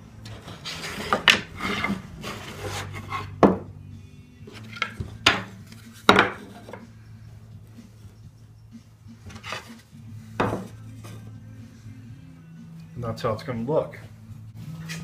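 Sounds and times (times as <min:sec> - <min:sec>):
wooden boards knocking: 0:03.4 - 0:03.7, 0:04.7 - 0:06.8, 0:10.4 - 0:10.8.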